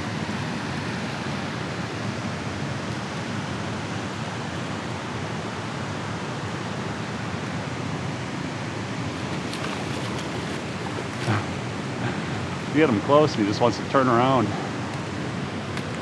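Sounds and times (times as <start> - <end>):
turbulent water rushing: 4.6 - 13.8.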